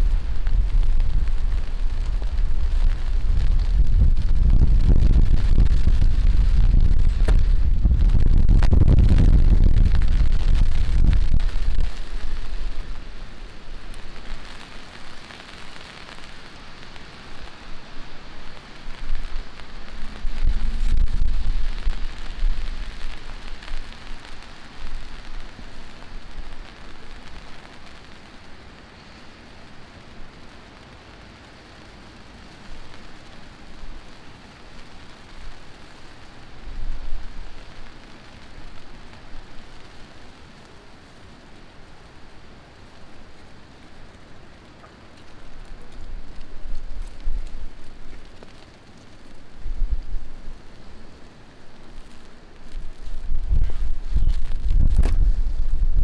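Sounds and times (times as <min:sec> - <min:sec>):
low rumble: 0:00.0 - 0:14.3, 0:19.0 - 0:23.8, 0:52.7 - 0:56.0
heavy rain falling: 0:00.0 - 0:56.0.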